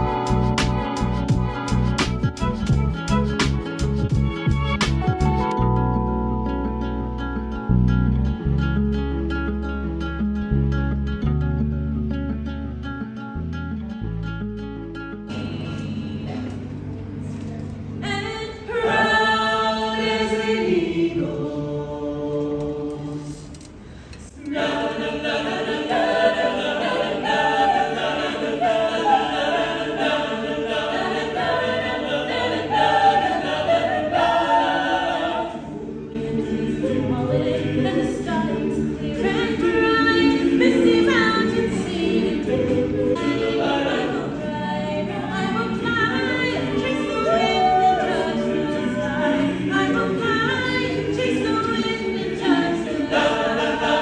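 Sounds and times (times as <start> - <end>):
a cappella group singing: 0.0 - 2.9, 18.0 - 54.0.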